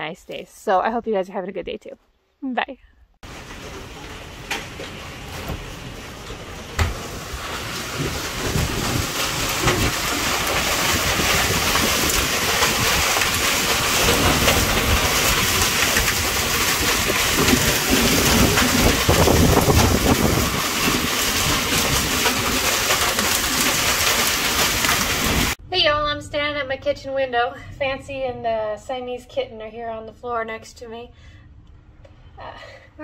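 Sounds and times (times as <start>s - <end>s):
heavy rain pouring: 3.2s - 25.6s.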